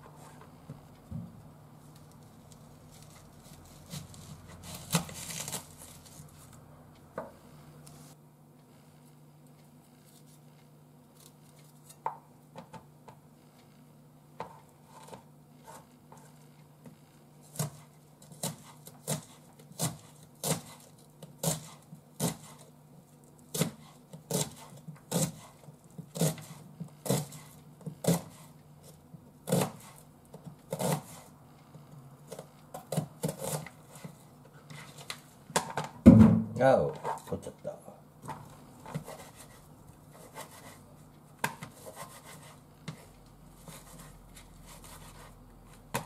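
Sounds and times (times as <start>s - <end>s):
knife chopping onion on board: 17.5s - 22.6s, 23.5s - 28.5s, 29.4s - 31.3s, 32.3s - 34.1s, 41.4s - 44.1s, 44.7s - 46.0s.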